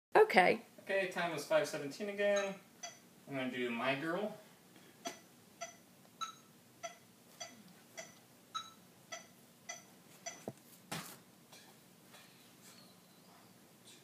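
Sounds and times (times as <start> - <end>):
metronome clicking: 5.1 - 10.4.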